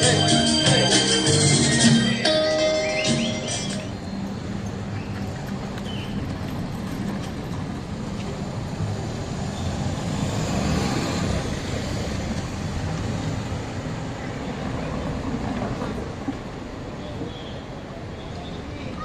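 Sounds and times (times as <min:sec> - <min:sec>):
street traffic rumble: 0:00.0 - 0:19.0
vehicle passing: 0:03.2 - 0:16.7.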